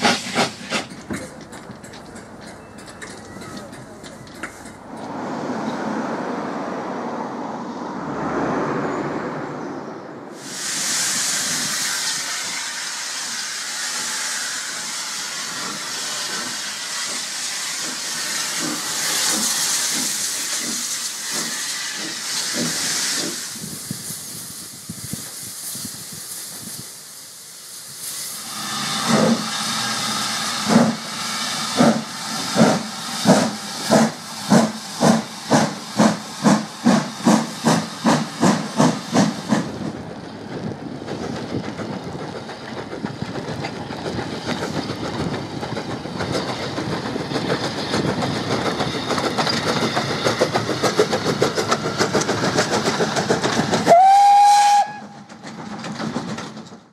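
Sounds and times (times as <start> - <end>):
steam locomotive hissing steam: 0.0 - 1.8, 8.8 - 56.4
steam engine exhaust beats: 0.0 - 4.9, 10.4 - 56.4.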